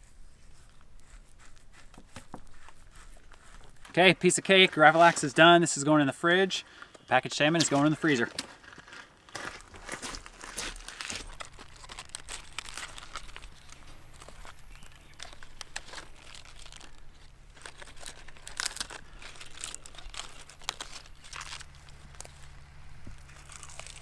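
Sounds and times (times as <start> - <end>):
leafy greens rustling and snapping: 7.5 - 24.0.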